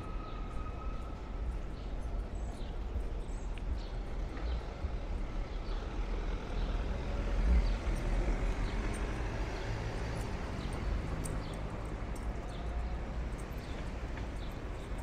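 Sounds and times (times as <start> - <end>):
low rumble of traffic: 0.0 - 15.0
vehicle passing: 5.9 - 15.0.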